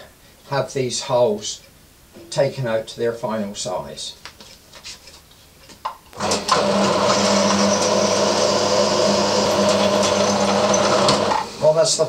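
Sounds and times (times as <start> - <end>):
drill press motor humming: 6.2 - 11.8.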